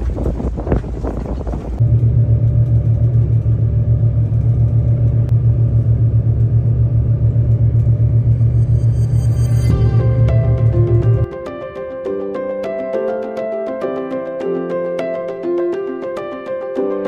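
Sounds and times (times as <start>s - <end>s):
wind rushing over microphone: 0.0s - 1.8s
boat engine pulsing rumble: 0.0s - 11.3s.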